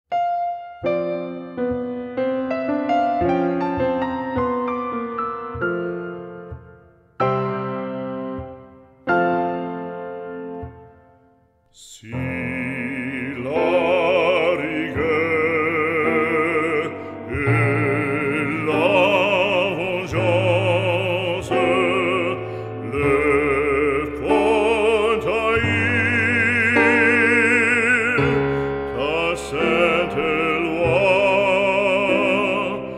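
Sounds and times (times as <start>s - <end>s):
instrumental accompaniment: 0.1s - 32.9s
operatic voice singing: 11.7s - 32.9s.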